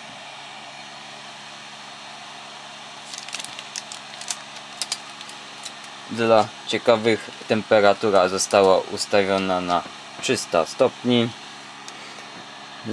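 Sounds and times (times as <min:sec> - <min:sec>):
hot-air fan blowing: 0:00.0 - 0:12.9
sharp clicks and crackles: 0:03.1 - 0:06.0.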